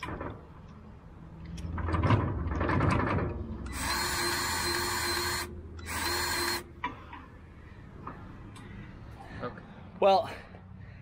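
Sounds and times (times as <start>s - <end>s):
grease gun motor running: 3.7s - 6.6s.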